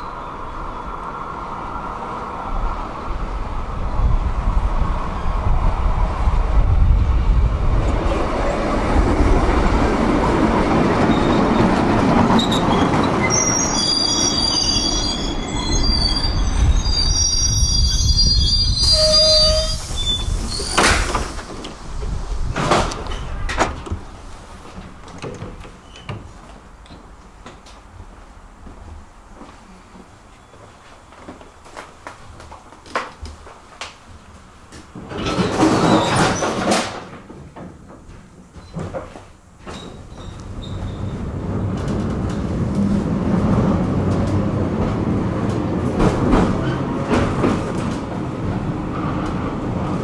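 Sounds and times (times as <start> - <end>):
tram wheels squealing: 0.0 - 1.2, 10.9 - 21.4, 35.2 - 36.7, 39.7 - 41.9, 46.4 - 47.6
tram wheels rumbling on rails: 0.0 - 50.0.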